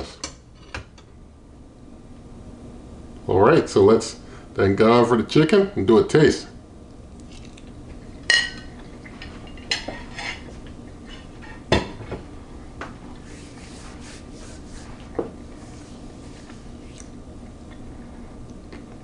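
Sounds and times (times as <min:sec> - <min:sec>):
faint steady hum: 0:00.0 - 0:19.0
cutlery clinking and scraping: 0:09.4 - 0:11.6.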